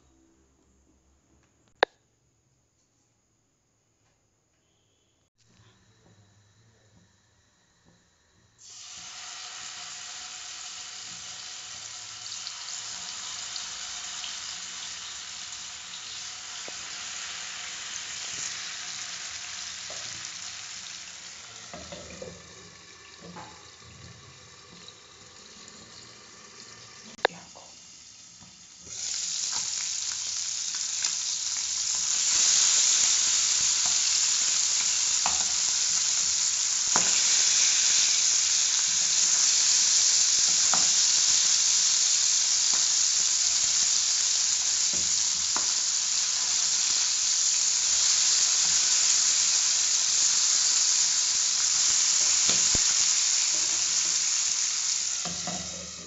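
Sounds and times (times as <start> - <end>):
fish sizzling in hot oil: 8.6 - 56.0.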